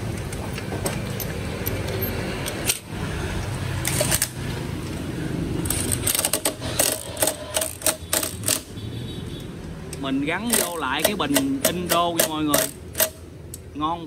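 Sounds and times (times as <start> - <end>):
impact driver rattling: 5.7 - 8.7, 10.5 - 13.3.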